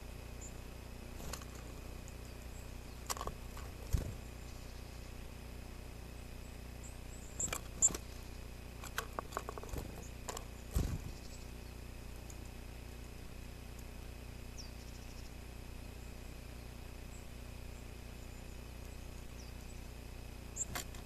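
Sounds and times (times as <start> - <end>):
faint bird chirp: 0.0 - 5.4, 6.0 - 12.6, 14.4 - 21.0
low camera hum: 0.0 - 21.0
squirrel claws scratching on wood: 8.8 - 11.1.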